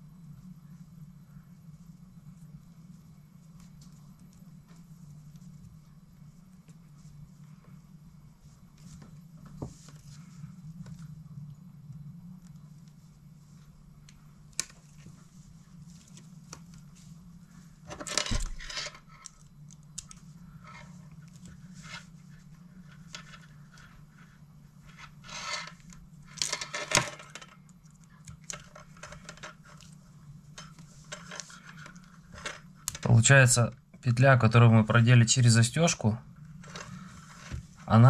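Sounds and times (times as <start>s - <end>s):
steady low hum: 0.0s - 38.0s
fishing line scraping rustles: 20.2s - 27.0s.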